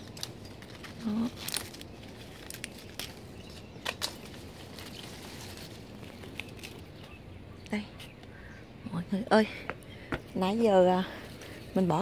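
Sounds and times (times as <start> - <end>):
leaves and vines rustling: 0.0 - 9.4, 10.0 - 12.0.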